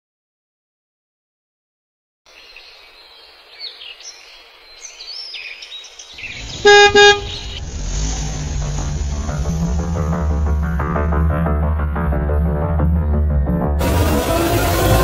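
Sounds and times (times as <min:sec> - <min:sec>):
car horn toots: 0:06.6 - 0:07.6
background music with low bass: 0:07.4 - 0:15.0.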